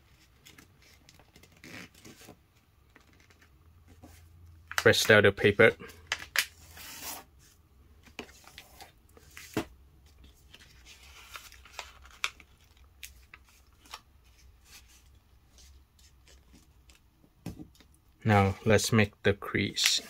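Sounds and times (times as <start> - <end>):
paper rustling and folding: 0.0 - 4.2, 5.9 - 17.1.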